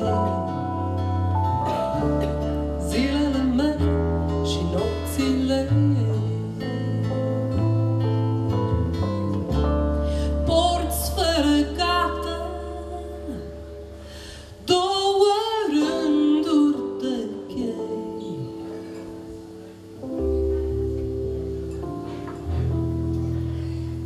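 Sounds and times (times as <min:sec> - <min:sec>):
woman singing: 0:00.0 - 0:01.0, 0:02.7 - 0:07.2, 0:10.2 - 0:13.8, 0:14.6 - 0:18.8
acoustic guitar chords: 0:00.0 - 0:24.0.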